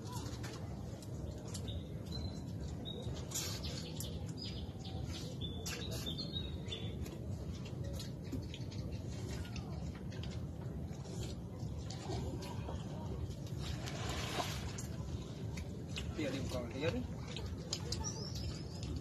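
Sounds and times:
low background rumble: 0.0s - 19.0s
birds chirping: 15.3s - 19.0s.

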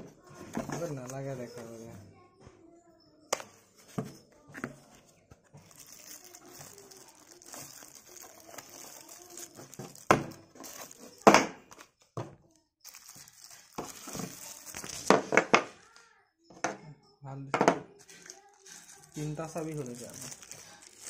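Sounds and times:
plastic bag crinkling: 5.6s - 11.9s, 12.5s - 16.0s, 18.0s - 21.0s.

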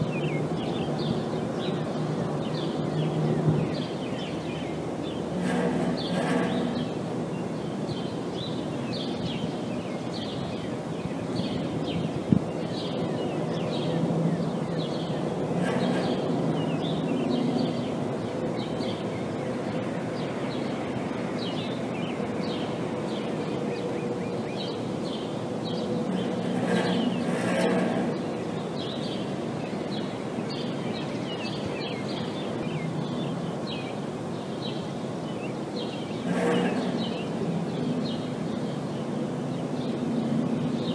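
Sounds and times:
bird chirps: 21.4s - 40.1s.

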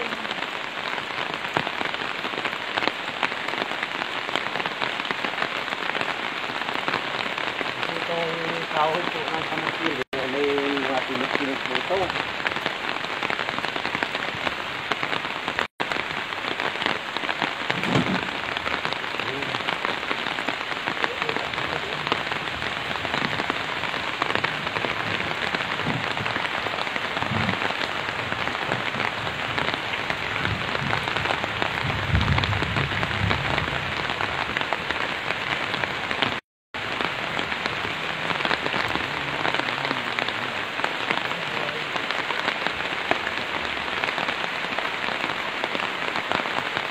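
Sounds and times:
steady rain falling: 0.0s - 46.9s
firewood thudding into truck bed: 17.7s - 18.3s.

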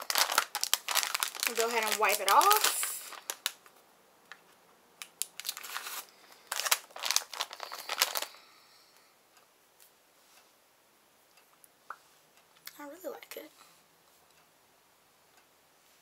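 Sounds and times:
wipe crinkling and rustling: 0.0s - 3.8s.

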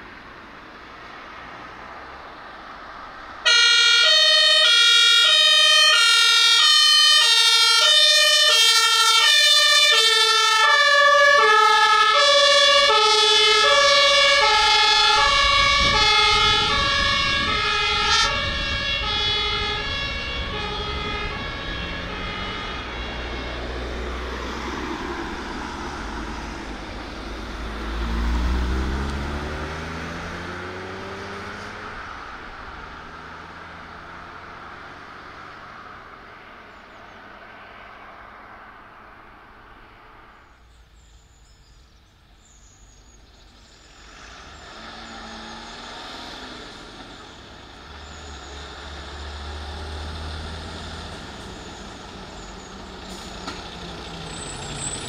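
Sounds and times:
heavy vehicle engine accelerating: 2.9s - 40.4s, 43.5s - 55.0s
two-tone fire engine siren: 3.4s - 36.5s, 44.5s - 55.0s.

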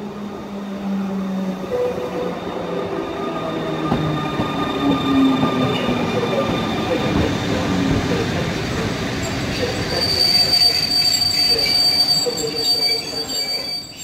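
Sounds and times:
train wheels rumbling: 0.9s - 14.0s
thin high squeal: 9.9s - 14.0s.

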